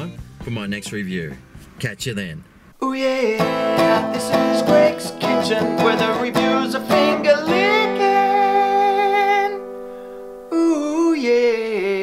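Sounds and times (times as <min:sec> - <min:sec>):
strummed string instrument chords: 0:03.2 - 0:10.0.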